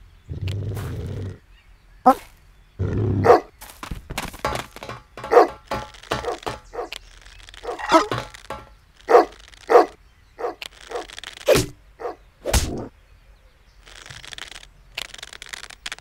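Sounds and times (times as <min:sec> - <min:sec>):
thuds: 0:03.7 - 0:06.9, 0:07.7 - 0:08.8.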